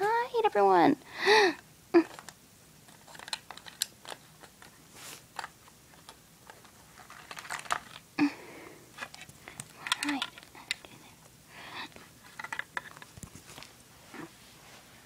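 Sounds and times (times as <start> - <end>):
plastic toys clicking on carpet: 2.0 - 8.1, 9.0 - 11.0, 12.2 - 13.4.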